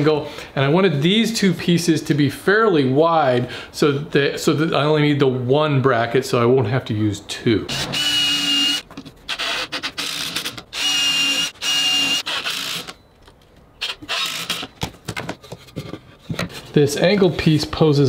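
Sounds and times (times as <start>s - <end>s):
cordless drill whining: 7.7s - 13.0s, 13.8s - 14.8s.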